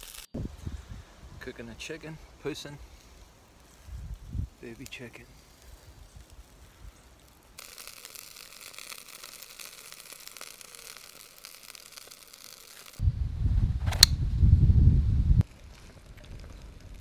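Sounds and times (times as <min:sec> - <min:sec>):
skewers sizzling on a grill: 0:00.0 - 0:00.3, 0:00.9 - 0:13.0
sharp click: 0:13.9 - 0:14.2.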